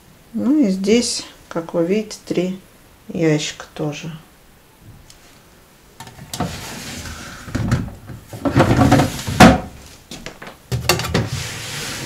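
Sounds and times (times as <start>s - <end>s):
plastic drawers scraping: 6.0s - 9.8s, 10.8s - 12.0s.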